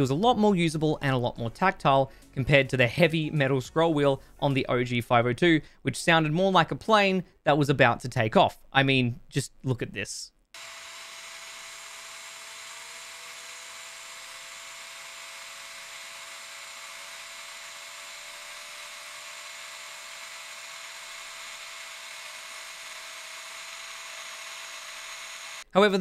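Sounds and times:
spinning wheel whine: 0:10.6 - 0:25.6
electric blower running: 0:10.6 - 0:25.7.

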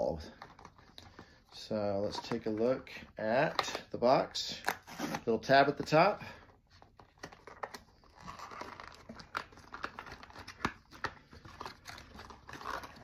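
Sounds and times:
cardboard rustling and crinkling: 0:06.6 - 0:13.0.

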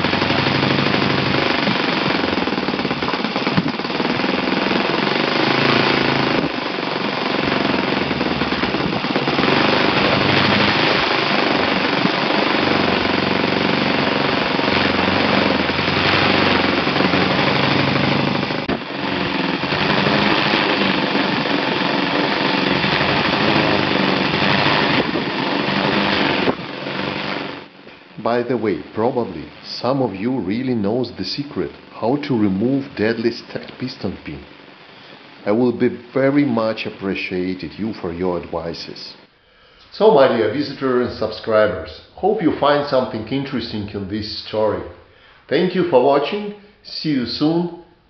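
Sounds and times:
model engine running fast: 0:00.0 - 0:34.6.

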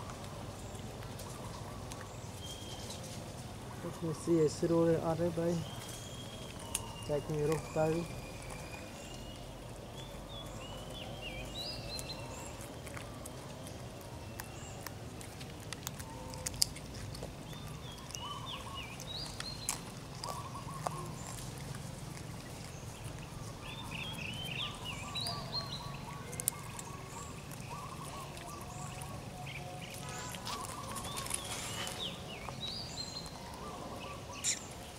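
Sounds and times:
high chirping animal calls: 0:03.8 - 0:14.9, 0:15.8 - 0:34.9.

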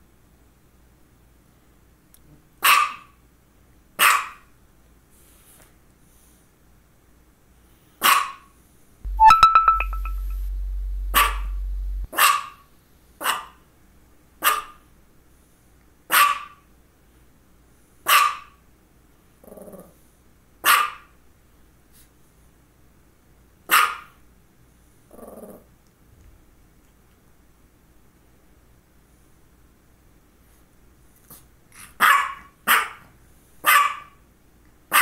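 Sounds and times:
small dog barking: 0:02.6 - 0:03.2, 0:04.0 - 0:04.5, 0:08.0 - 0:08.5, 0:11.1 - 0:12.6, 0:13.2 - 0:13.6, 0:14.4 - 0:14.8, 0:16.1 - 0:16.6, 0:18.1 - 0:18.6, 0:20.6 - 0:21.2, 0:23.7 - 0:24.2, 0:32.0 - 0:34.2
loud low hum: 0:09.1 - 0:12.1.

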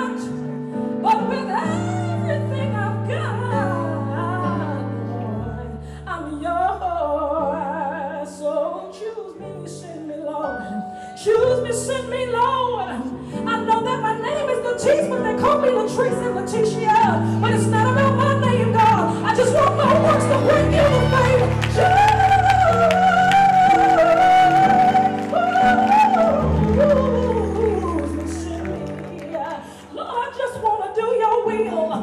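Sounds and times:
woman singing gospel: 0:00.0 - 0:32.0
sustained backing chords: 0:17.1 - 0:30.2.

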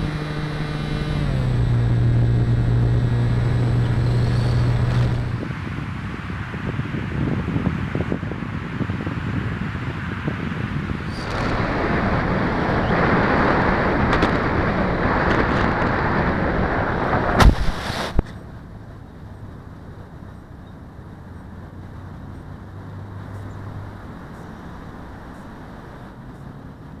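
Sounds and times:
air rushing over model plane: 0:01.5 - 0:05.7, 0:10.8 - 0:18.3
bump in grass: 0:02.0 - 0:05.4, 0:17.1 - 0:18.4.

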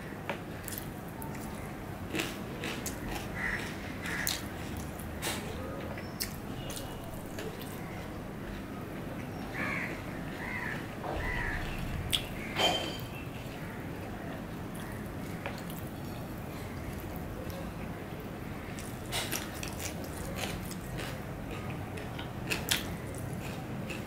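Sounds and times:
man chewing food: 0:00.6 - 0:05.4, 0:06.2 - 0:08.7, 0:14.7 - 0:17.7, 0:18.7 - 0:24.0.

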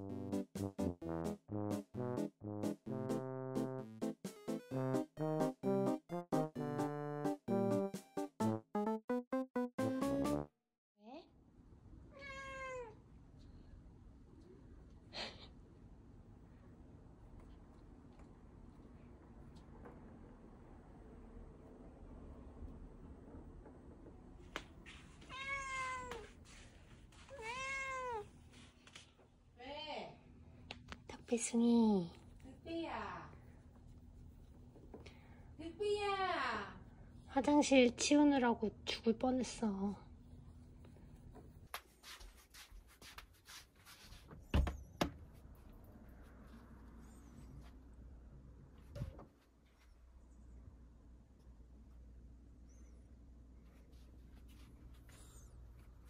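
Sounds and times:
cat meowing: 0:12.1 - 0:13.0, 0:25.2 - 0:26.3, 0:27.3 - 0:28.3.

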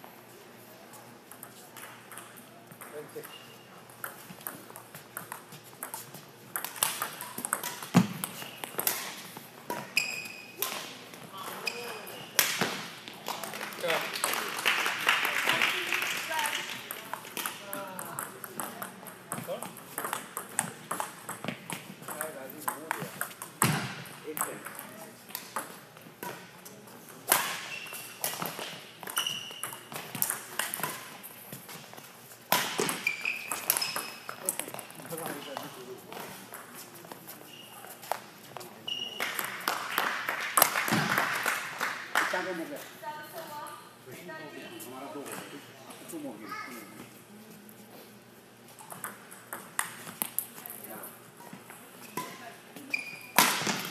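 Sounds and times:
shoes squeaking on court: 0:03.1 - 0:13.2, 0:27.4 - 0:39.5, 0:51.4 - 0:53.9
racket hitting shuttlecock: 0:32.5 - 0:34.8, 0:53.4 - 0:53.9.

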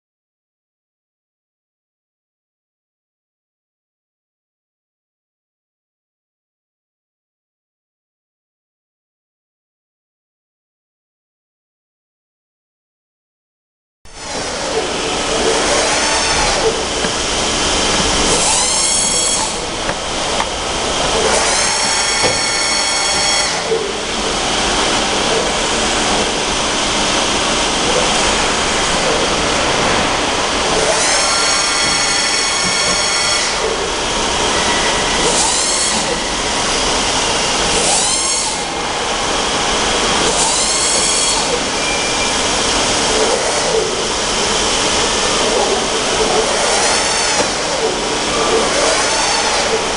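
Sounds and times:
milling machine drives whining: 0:14.2 - 0:49.9.

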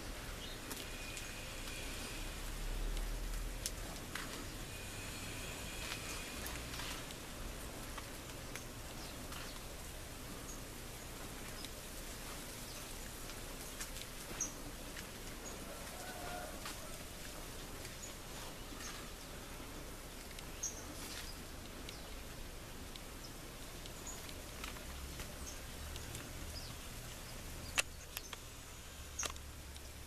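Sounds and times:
sharp clicks: 0:27.7 - 0:28.5, 0:29.2 - 0:29.9.

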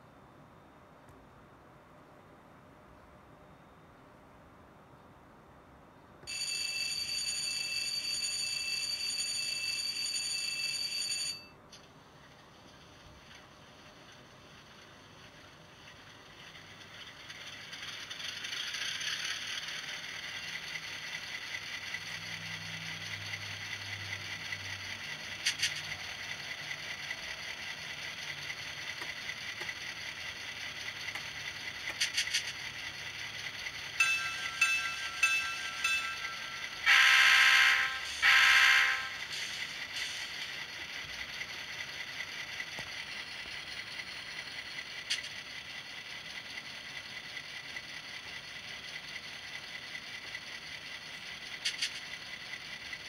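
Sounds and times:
model diesel engine sound: 0:12.2 - 0:53.0
loud horn blasts: 0:36.9 - 0:39.2.

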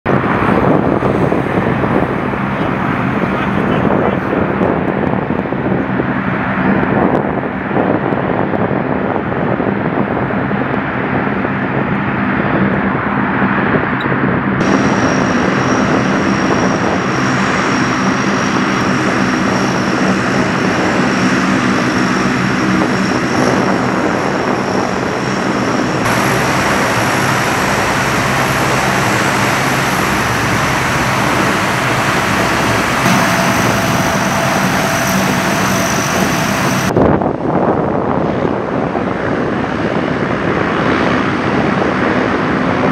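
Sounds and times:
turboprop engines droning: 0:00.0 - 0:42.9.

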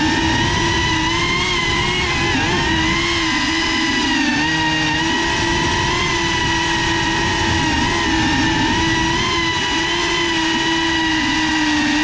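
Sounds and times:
drone propellers whining: 0:00.0 - 0:12.0.

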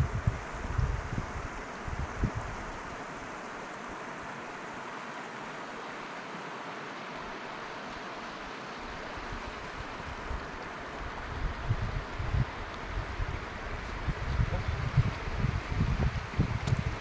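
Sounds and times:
wind bumping on microphone: 0:00.0 - 0:03.0, 0:09.2 - 0:17.0
stream flowing over rocks: 0:00.1 - 0:17.0.

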